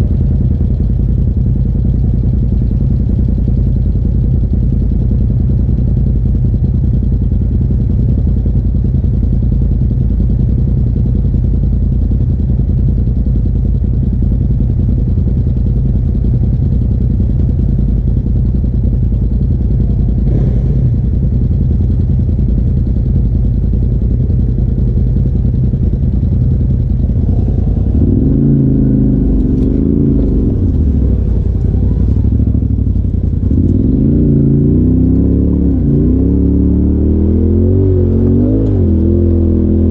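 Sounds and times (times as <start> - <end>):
off-road vehicle engine idling: 0.0 - 39.9
engine revving: 20.1 - 21.2, 27.0 - 39.9.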